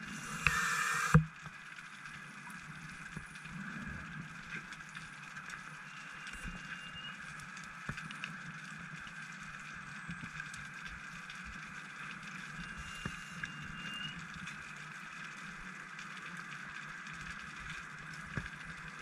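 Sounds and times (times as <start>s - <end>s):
underwater hiss: 0.0s - 1.3s
faint clicks: 0.3s - 19.0s
faint thin whistle: 5.8s - 7.2s, 12.5s - 14.2s.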